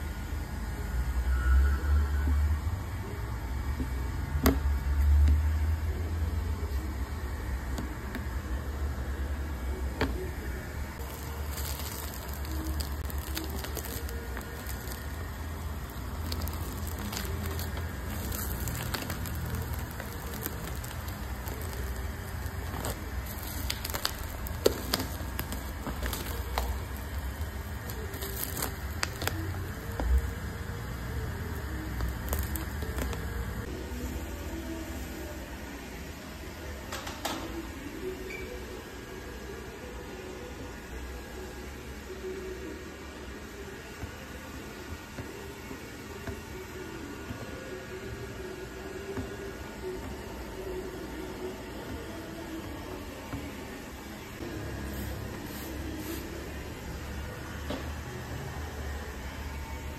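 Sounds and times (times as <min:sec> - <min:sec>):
plastic film crinkling: 0:11.0 - 0:30.3, 0:31.3 - 0:33.7
squeegee squishing on wet film: 0:11.0 - 0:30.3, 0:31.9 - 0:33.3.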